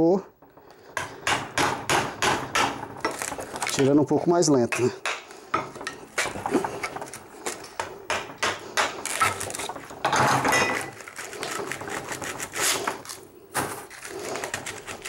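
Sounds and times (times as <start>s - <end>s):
screwdriver scraping metal: 10.8s - 13.2s.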